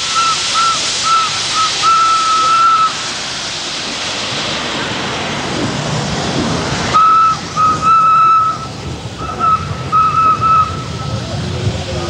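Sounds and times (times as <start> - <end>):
steam whistle blasts: 0.0 - 3.1, 6.9 - 11.1
steam hissing: 0.0 - 12.0.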